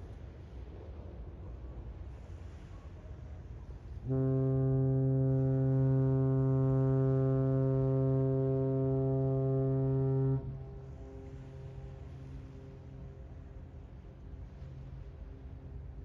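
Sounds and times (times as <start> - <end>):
ship horn low blast: 3.4 - 16.0.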